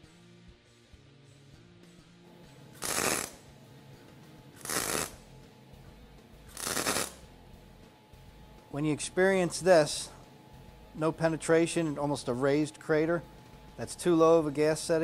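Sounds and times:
welding arc bursts: 2.8s - 3.4s, 4.6s - 5.2s, 6.5s - 7.2s.

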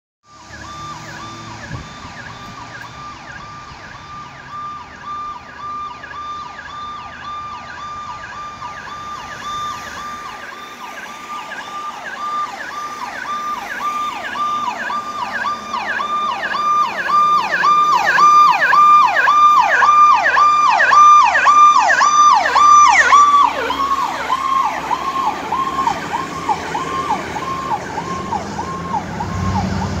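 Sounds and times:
ambulance siren: 0.2s - 30.0s.

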